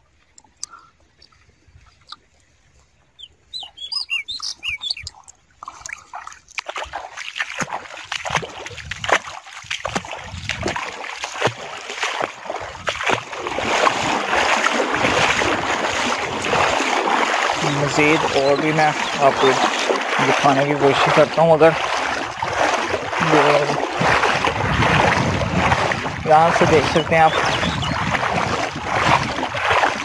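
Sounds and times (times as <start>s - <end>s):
water splashing and sloshing: 0.0s - 30.0s
bird chirping: 2.9s - 5.3s, 17.6s - 19.7s, 26.6s - 28.1s.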